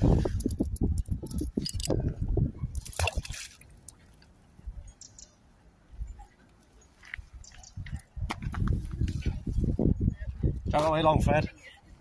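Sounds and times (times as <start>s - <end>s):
splash into water: 2.8s - 3.7s.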